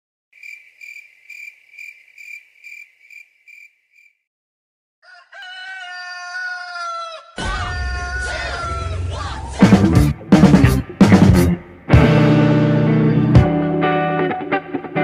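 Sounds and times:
cricket chirping: 0.4 - 4.2
rooster crowing: 5.0 - 9.3
music with drums: 9.6 - 13.7.

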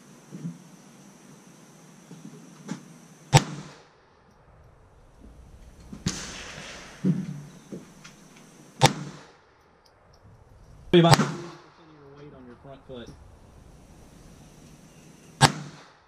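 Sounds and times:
pistol shots with echo: 5.8 - 9.5, 10.9 - 11.8, 15.4 - 16.0.

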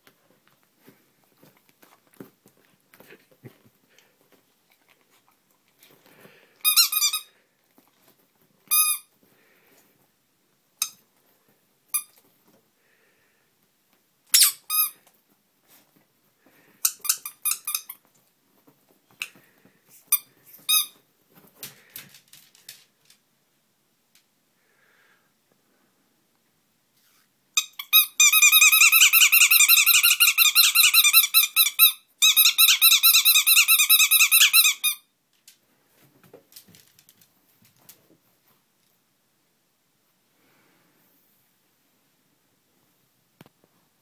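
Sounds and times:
rubber duck squeak toy: 14.3 - 15.0, 27.6 - 35.1.

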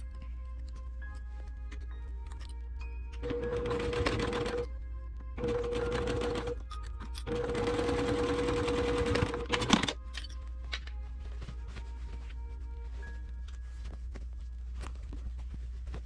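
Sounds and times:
sewing machine stitching: 3.2 - 4.6, 5.4 - 6.6, 7.3 - 10.0.

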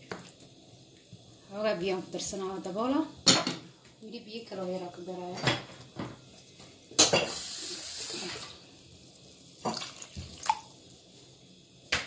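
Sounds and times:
water running: 5.9 - 11.2.

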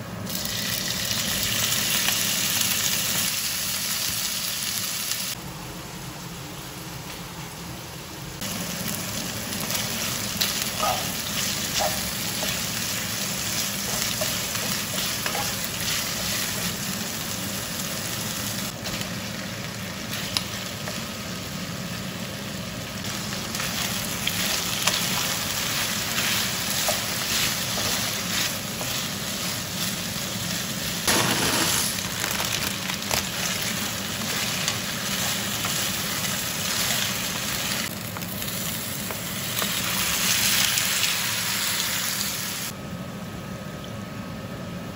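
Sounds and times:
food sizzling in a pan: 0.3 - 5.4, 8.4 - 42.7.

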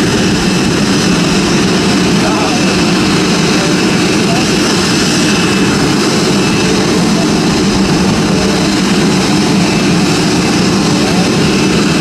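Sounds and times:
jet engines humming at low power: 0.0 - 12.0.

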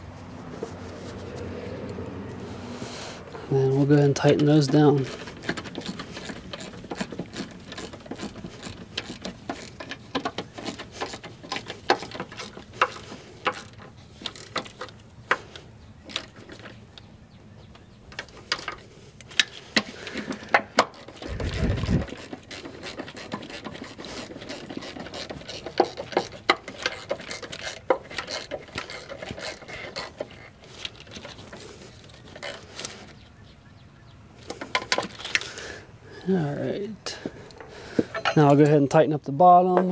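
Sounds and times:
ratchet wrench clicking: 5.1 - 14.8.

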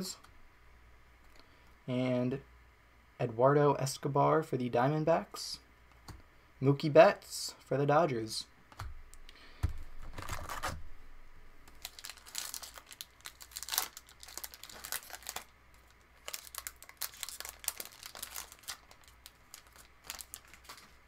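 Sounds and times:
foil wrapper crinkling and tearing: 10.0 - 10.8, 11.7 - 21.0.

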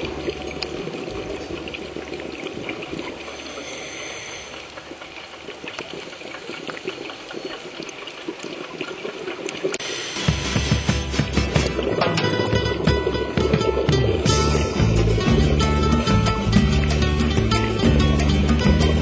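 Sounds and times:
steady watery hiss: 0.0 - 12.0
small crackling clicks: 4.5 - 9.9.

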